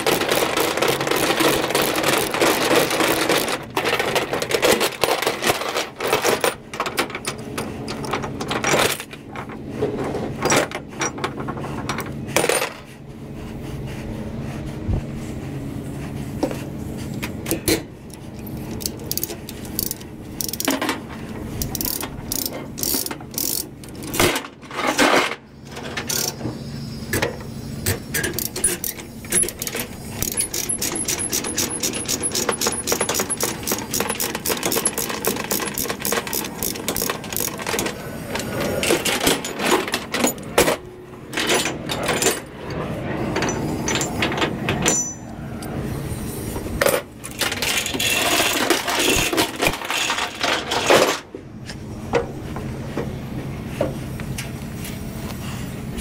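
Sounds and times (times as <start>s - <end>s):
ratchet clicking: 18.1s - 20.8s, 21.6s - 24.2s, 26.0s - 26.4s, 28.0s - 37.8s
steel chains clanking: 21.6s - 24.2s, 28.2s - 42.7s, 43.3s - 45.8s, 46.8s - 51.3s.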